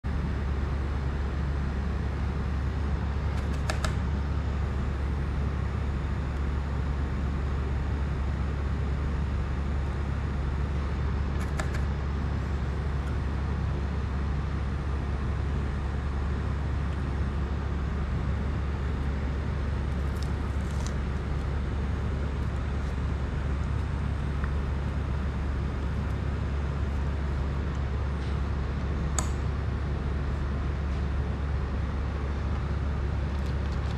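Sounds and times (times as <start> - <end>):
low hum: 0.0 - 33.9.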